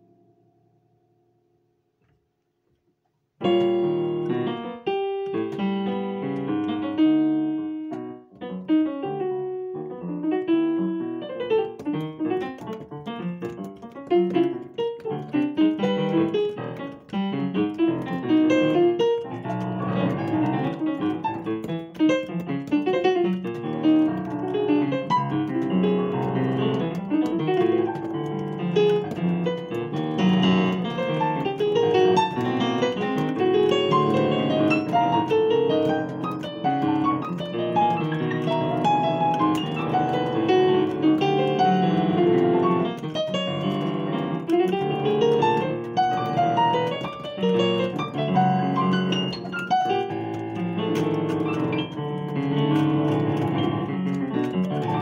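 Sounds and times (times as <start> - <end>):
digital piano playing: 3.4 - 55.0.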